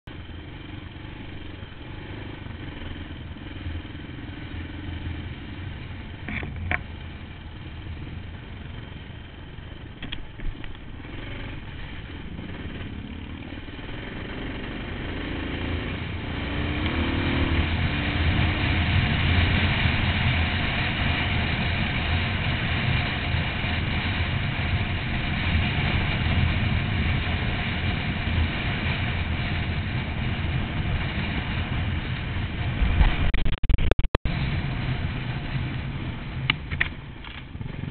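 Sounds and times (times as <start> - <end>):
motorcycle engine running: 0.0 - 37.9
wind noise: 16.0 - 37.7.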